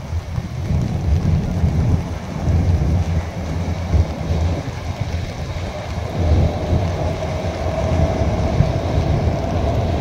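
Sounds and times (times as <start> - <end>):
train rumbling over bridge: 0.0 - 10.0
train whine: 3.2 - 10.0.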